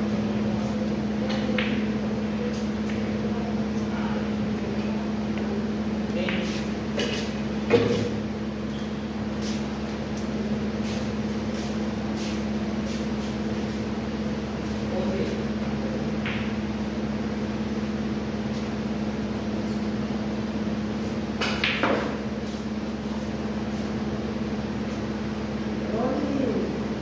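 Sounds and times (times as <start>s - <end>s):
steady low hum: 0.0s - 27.0s
snooker balls clacking: 21.4s - 22.2s.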